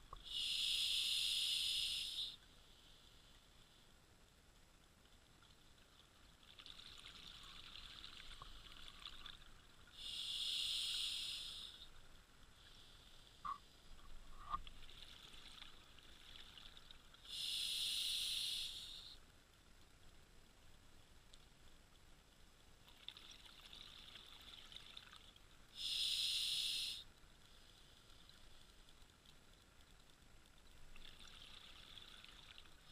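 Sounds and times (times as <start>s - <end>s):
diver breathing through regulator: 0.3s - 2.4s, 10.0s - 11.9s, 17.3s - 19.1s, 25.8s - 27.0s.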